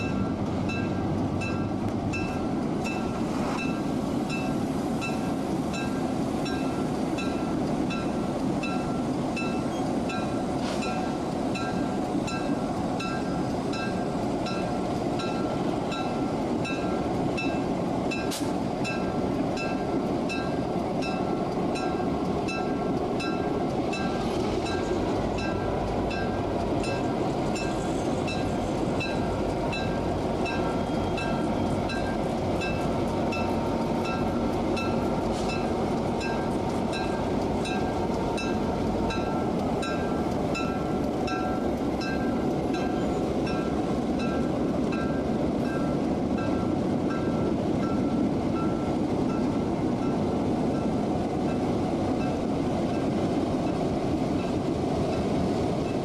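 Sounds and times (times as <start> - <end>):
diesel locomotive engines rumbling: 0.0 - 56.0.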